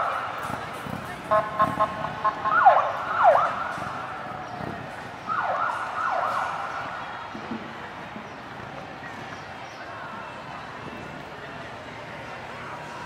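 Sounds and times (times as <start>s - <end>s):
steady high siren tone: 1.3s - 4.1s
police siren whoops: 2.4s - 4.0s.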